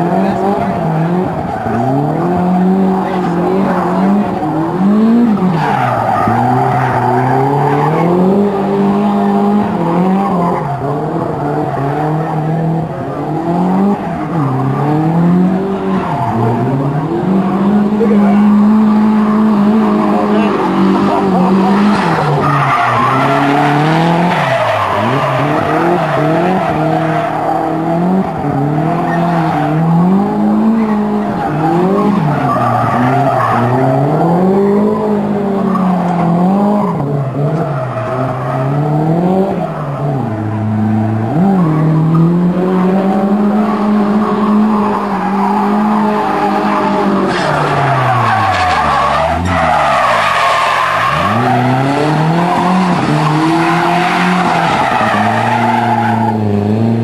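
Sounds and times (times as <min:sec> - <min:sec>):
car engine revving hard: 0:00.0 - 0:57.0
tyres squealing: 0:11.5 - 0:38.8, 0:39.6 - 0:56.4.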